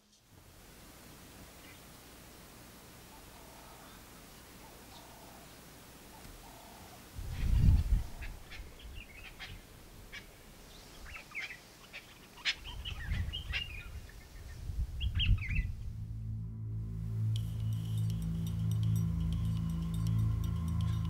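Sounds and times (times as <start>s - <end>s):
birds chirping: 3.0s - 16.0s
dull low rumbles: 14.7s - 21.0s
low music tones: 15.3s - 21.0s.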